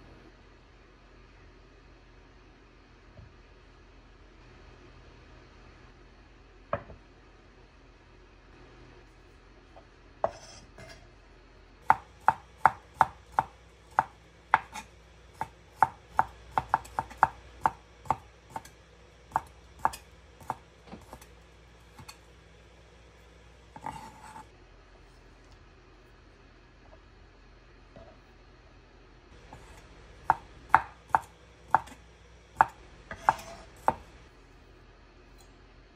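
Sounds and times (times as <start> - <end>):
knife scraping slices: 10.3 - 11.0, 13.9 - 15.5, 23.7 - 24.5, 32.6 - 34.1
knife knocking on wooden board: 32.6 - 34.0.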